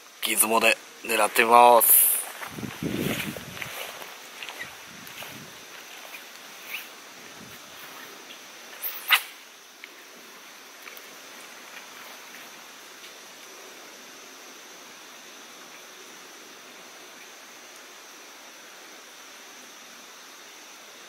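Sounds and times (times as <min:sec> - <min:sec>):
steady outdoor hiss: 0:00.0 - 0:21.0
faint ticks: 0:09.8 - 0:10.1, 0:10.8 - 0:13.6.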